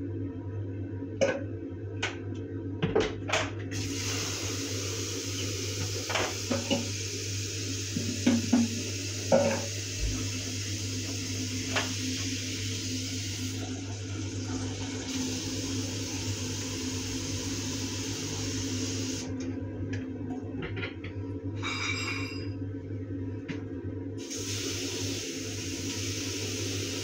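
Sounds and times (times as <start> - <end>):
tap water running into basin: 3.8 - 19.3, 24.2 - 27.0.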